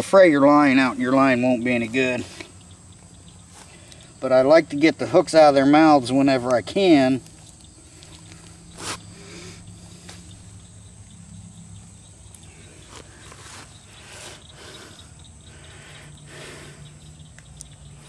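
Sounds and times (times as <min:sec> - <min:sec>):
low steady hum: 0:00.0 - 0:18.0
high-pitched insect buzz: 0:06.8 - 0:18.0
soft rustles: 0:12.8 - 0:14.0.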